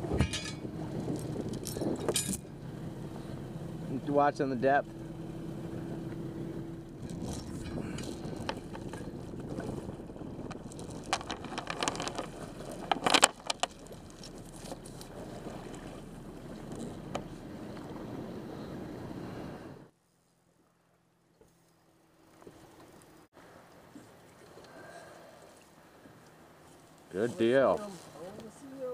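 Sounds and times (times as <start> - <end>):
boat motor running: 0.0 - 19.9
wind on water: 0.0 - 19.9, 21.8 - 28.9
metal chain clinking: 0.2 - 2.5.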